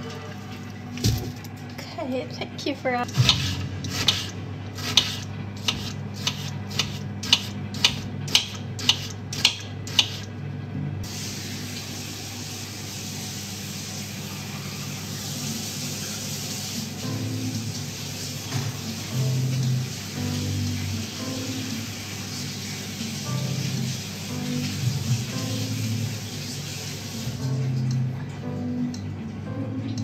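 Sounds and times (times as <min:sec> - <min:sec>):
tap running into sink: 0:01.0 - 0:01.5
knife chopping on cutting board: 0:03.2 - 0:10.2.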